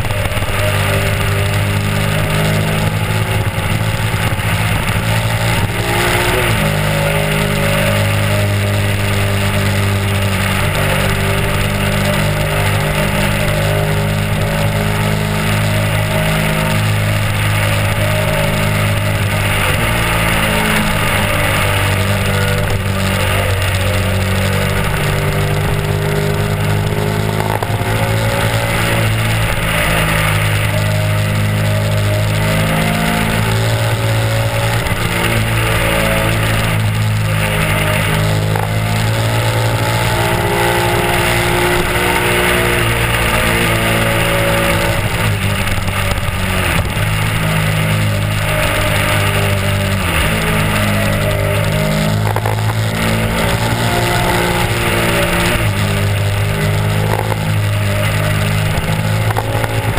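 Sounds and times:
motorcycle engine running: 0:00.0 - 0:59.9
wind rush on microphone: 0:00.0 - 0:59.9.

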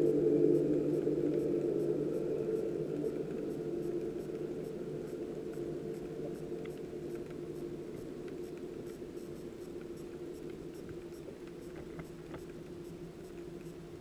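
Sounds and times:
underwater low hum: 0:00.0 - 0:14.0
faint clicks: 0:02.9 - 0:13.8.

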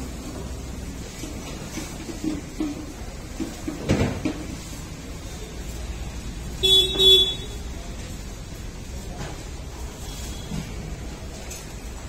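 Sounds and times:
vehicle horn honking: 0:06.6 - 0:07.6.

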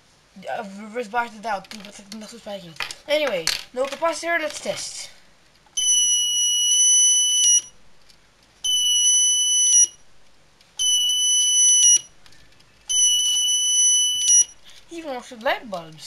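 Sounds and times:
alarm horn high-pitched tone: 0:08.7 - 0:10.0, 0:10.8 - 0:12.1, 0:12.9 - 0:14.6.

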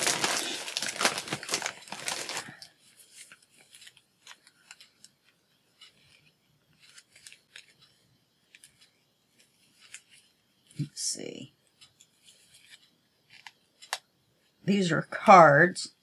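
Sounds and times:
packaging rustling: 0:00.0 - 0:05.1, 0:05.8 - 0:07.9, 0:08.5 - 0:10.3.

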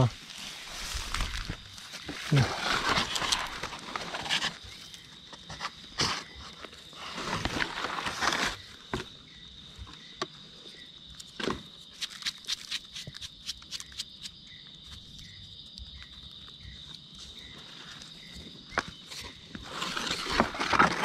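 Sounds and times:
high insect drone: 0:00.0 - 0:21.0
dry leaves crunching: 0:00.1 - 0:04.5.

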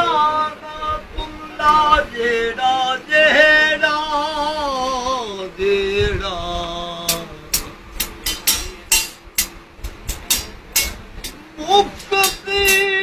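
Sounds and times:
man chanting: 0:11.6 - 0:13.0.

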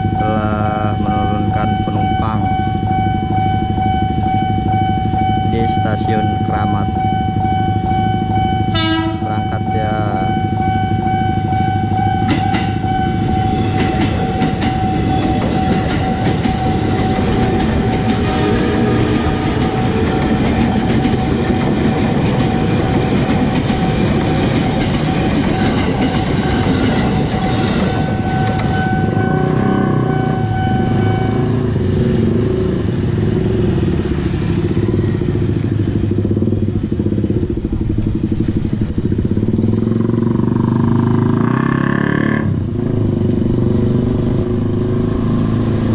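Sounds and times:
crossing alarm high tone: 0:00.0 - 0:32.4
electric train rumbling: 0:00.0 - 0:45.9
motorcycle engines: 0:04.1 - 0:12.4, 0:16.6 - 0:45.9.

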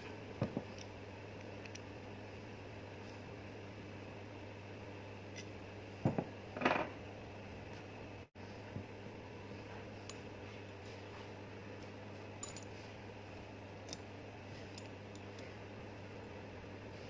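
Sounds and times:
steady low hum: 0:00.0 - 0:17.0
light metallic clicks and clinks: 0:12.4 - 0:12.8.

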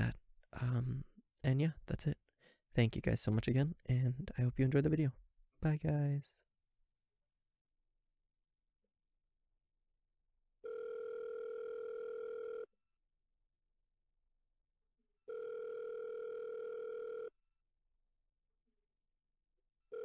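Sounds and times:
telephone ringing: 0:10.6 - 0:12.7, 0:15.3 - 0:17.4.

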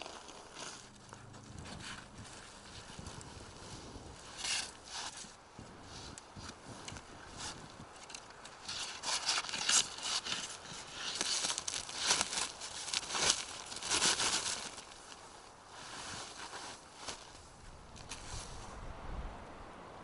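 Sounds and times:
snow crunching: 0:00.0 - 0:19.0
plastic tarp crinkling: 0:07.3 - 0:18.4.

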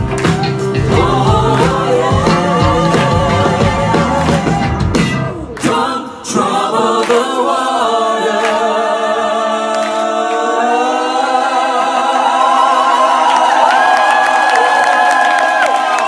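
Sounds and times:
band playing: 0:00.0 - 0:06.9
a cappella vocal harmony: 0:00.6 - 0:13.8.

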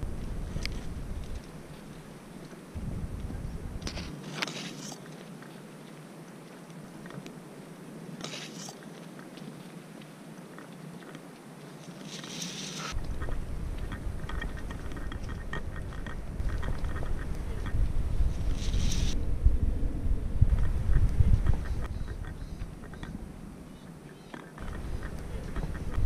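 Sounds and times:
wind buffeting microphone: 0:00.0 - 0:04.2, 0:12.9 - 0:26.0
reeds rustling in wind: 0:00.0 - 0:26.0
small clicks and rustles: 0:03.2 - 0:07.4, 0:08.2 - 0:19.2.

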